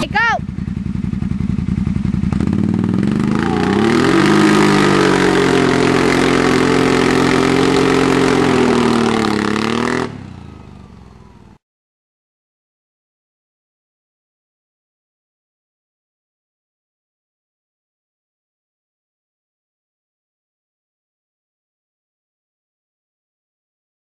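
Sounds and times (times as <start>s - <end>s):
atv engine revving: 0.0s - 11.6s
wheels spinning on pavement: 0.0s - 11.6s.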